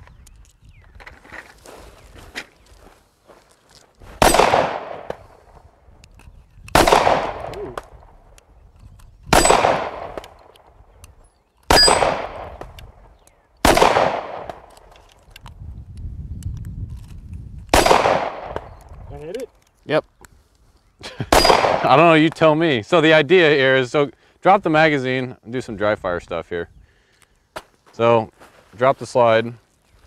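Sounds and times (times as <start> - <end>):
pistol shots with echo: 4.2 - 5.3, 6.7 - 8.2, 9.3 - 10.8, 11.7 - 12.8, 13.6 - 14.7, 17.7 - 18.7, 21.3 - 22.0
steel target ringing: 11.7 - 12.2.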